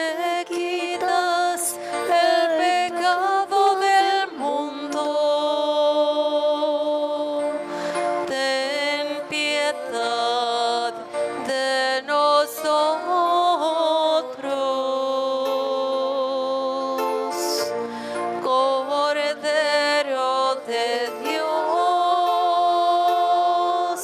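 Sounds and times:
group singing a slow hymn: 0:20.7 - 0:24.0.

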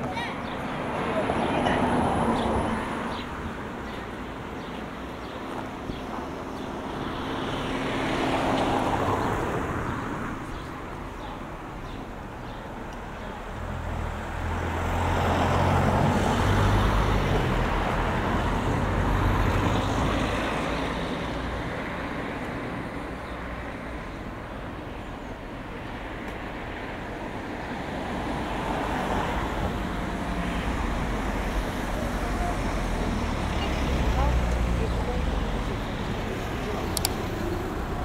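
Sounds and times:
vehicle passing: 0:13.5 - 0:23.0.

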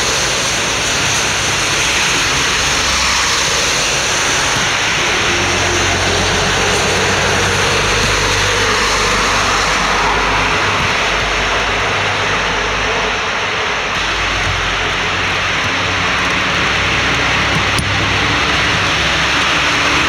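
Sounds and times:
lorry engine hum: 0:00.0 - 0:20.0
tyres hissing on wet road: 0:00.0 - 0:20.0.

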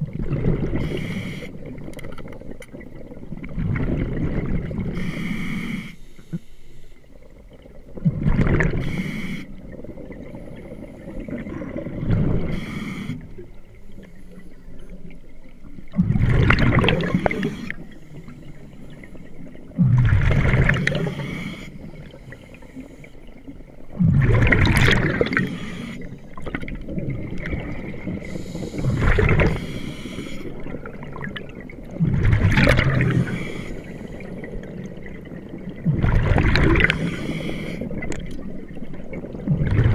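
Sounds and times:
bubbles gurgling: 0:00.0 - 0:05.0, 0:07.2 - 0:12.6, 0:15.0 - 0:18.0, 0:19.4 - 0:22.3, 0:23.6 - 0:39.9
diver breathing through regulator: 0:04.9 - 0:07.0, 0:08.8 - 0:09.6, 0:12.4 - 0:13.4, 0:20.9 - 0:23.3, 0:25.2 - 0:26.3, 0:28.2 - 0:30.8, 0:33.0 - 0:34.5, 0:36.8 - 0:38.0.

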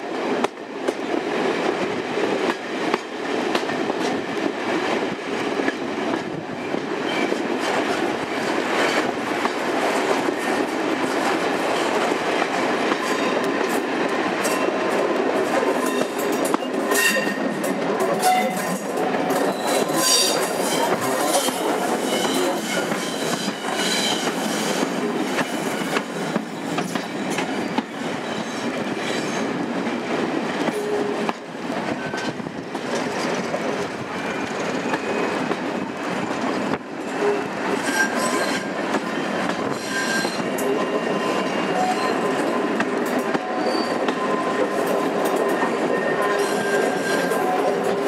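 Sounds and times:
train running rumble: 0:00.0 - 0:48.0
wheels squealing against rails: 0:06.5 - 0:07.5, 0:15.7 - 0:29.5, 0:30.6 - 0:32.5, 0:34.2 - 0:35.6, 0:36.3 - 0:48.0.

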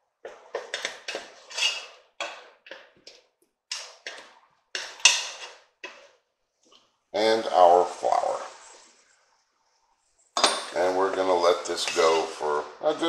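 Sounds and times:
wooden spoon scraping a pot: 0:00.2 - 0:06.9, 0:10.8 - 0:12.6.

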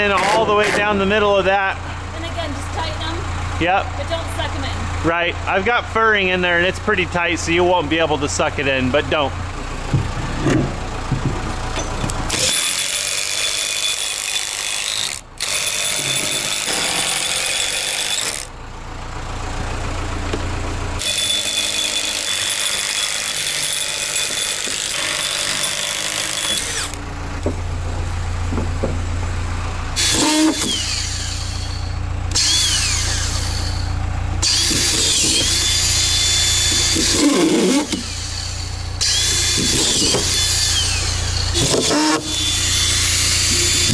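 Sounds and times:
motor whining down: 0:09.9 - 0:14.3, 0:20.3 - 0:27.5, 0:29.9 - 0:43.9
impact driver hammering screws: 0:12.3 - 0:18.5, 0:21.0 - 0:27.0, 0:30.0 - 0:31.7, 0:34.4 - 0:43.9.

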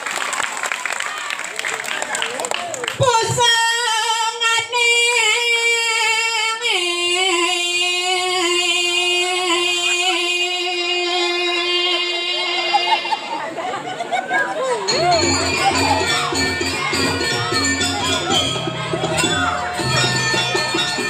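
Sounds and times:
woman singing long held notes: 0:03.4 - 0:13.0.

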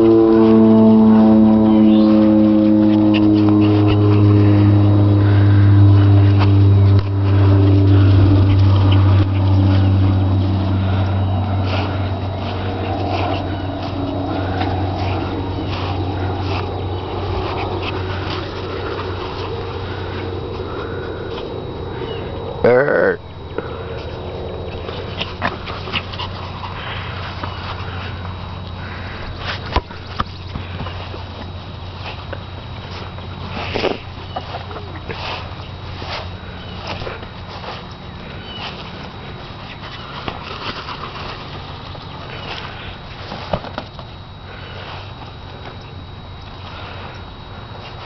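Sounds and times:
background hum: 0:00.0 - 0:48.0
dog breathing and sniffing: 0:07.2 - 0:22.3, 0:23.6 - 0:43.5.

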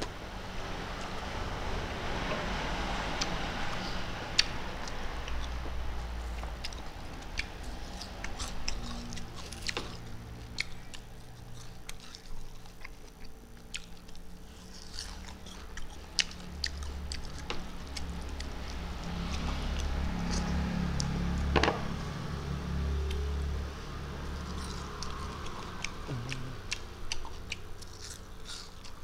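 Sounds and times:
close chewing with mouth smacks: 0:03.2 - 0:21.1, 0:24.2 - 0:29.0.

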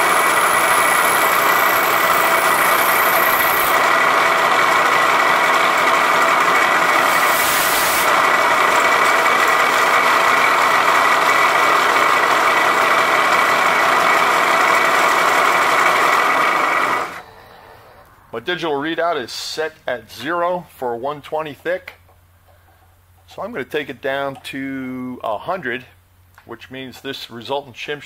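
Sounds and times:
high ringing tone: 0:00.0 - 0:03.7
milling machine cutting metal: 0:00.0 - 0:17.2
brief hiss: 0:07.1 - 0:08.1.

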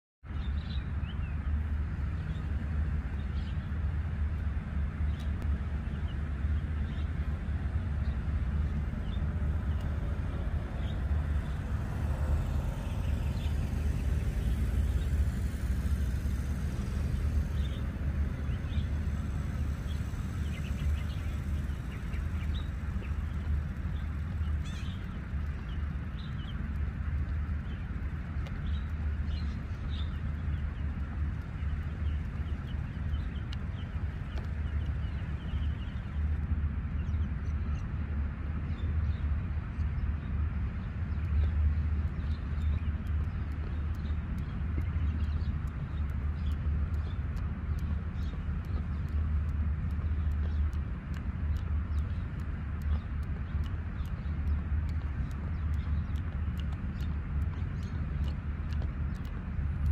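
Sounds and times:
wind rumble on microphone: 0:00.2 - 0:59.9
birds chirping: 0:04.7 - 0:38.0, 0:38.6 - 0:59.9.

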